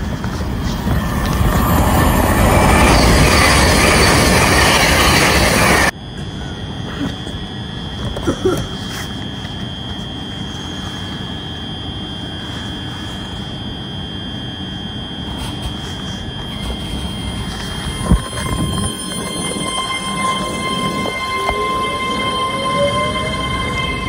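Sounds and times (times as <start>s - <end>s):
electric whine of train pulling away: 0.0s - 6.7s, 14.7s - 24.0s
train hum and whine: 0.0s - 24.0s.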